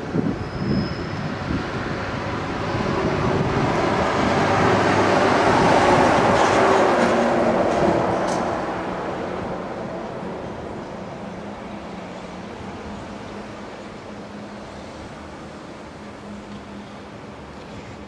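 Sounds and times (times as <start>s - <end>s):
train rumbling past: 0.0s - 18.0s.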